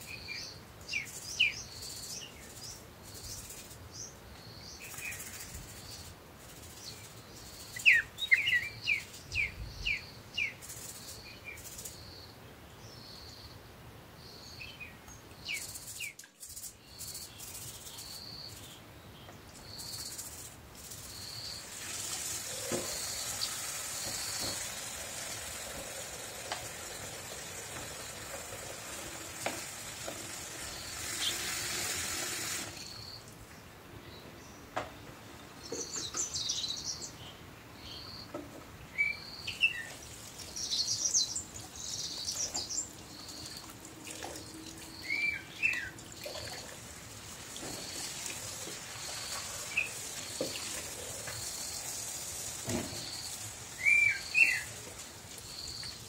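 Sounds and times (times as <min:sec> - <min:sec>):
tap running into sink: 0:22.5 - 0:30.5
brush scrubbing oranges: 0:45.7 - 0:55.4.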